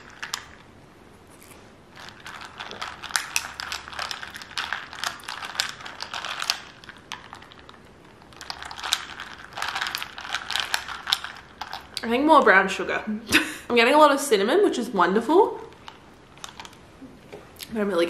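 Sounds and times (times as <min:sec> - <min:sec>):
ice cubes clicking in a glass: 0:02.0 - 0:12.0.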